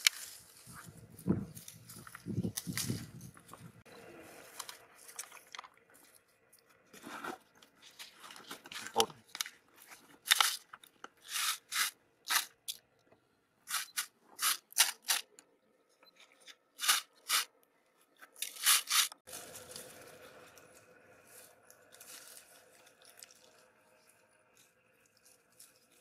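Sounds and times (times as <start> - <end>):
leafy twigs rustling: 0.0 - 12.4, 18.4 - 26.0.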